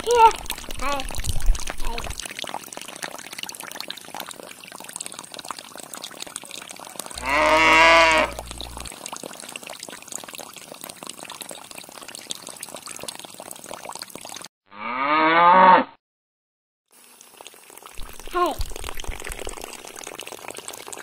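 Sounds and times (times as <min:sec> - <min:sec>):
water trickling from pipes: 0:00.0 - 0:14.5, 0:16.9 - 0:21.0
bleat-like animal call: 0:07.2 - 0:08.4.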